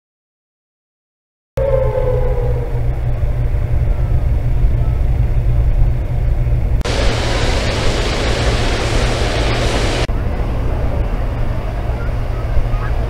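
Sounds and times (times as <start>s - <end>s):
constant low rumble: 1.6s - 13.0s
propane burner roaring: 5.9s - 11.7s.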